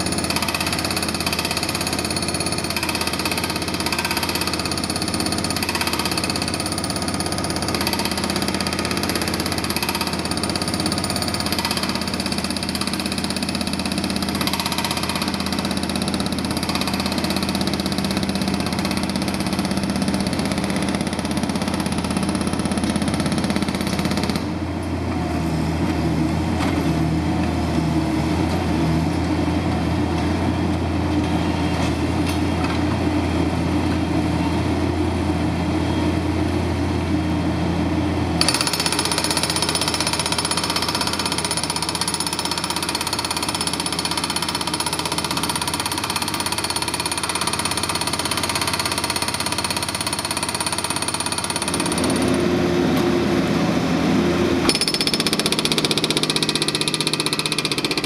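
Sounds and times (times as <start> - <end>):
hydraulic breaker hammering concrete: 0.0 - 24.6, 38.4 - 53.0, 54.6 - 58.0
diesel engine running: 51.6 - 54.7.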